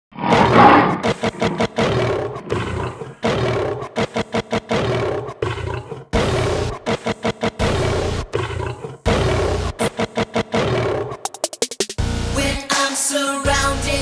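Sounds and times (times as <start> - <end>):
lion roar: 0.2 - 11.3.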